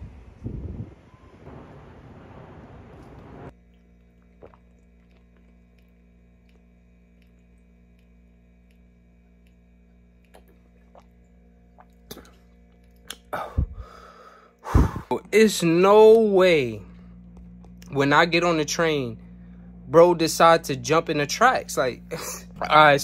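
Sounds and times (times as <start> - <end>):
steady low hum: 0.0 - 23.0
person gulping and swallowing: 3.5 - 14.0
person breathing: 13.3 - 15.1.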